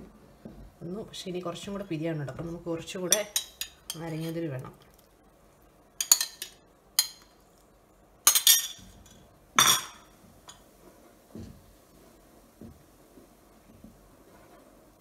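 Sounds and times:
faint stirring in pot: 0:00.0 - 0:15.0
metal spoon clinking on bowl: 0:06.0 - 0:07.2.

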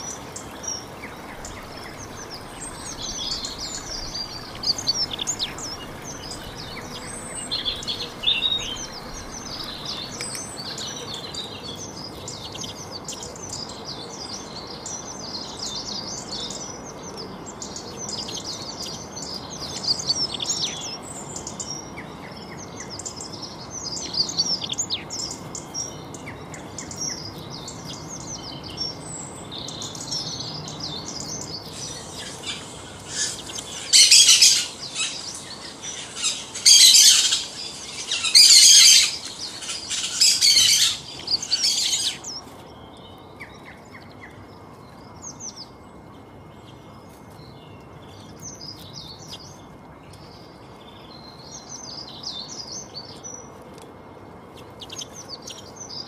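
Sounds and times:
songbirds chirping: 0:00.0 - 0:56.0
loud shrill birdsong: 0:31.7 - 0:42.4.

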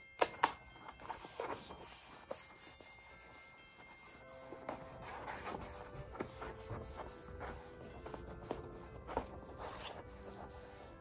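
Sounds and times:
paper rubbing and rustling: 0:01.0 - 0:11.0.

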